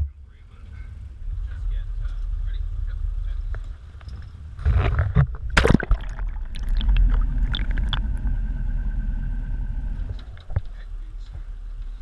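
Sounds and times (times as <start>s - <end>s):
muffled underwater rumble: 0.0s - 12.0s
faint steady tone: 6.6s - 12.0s.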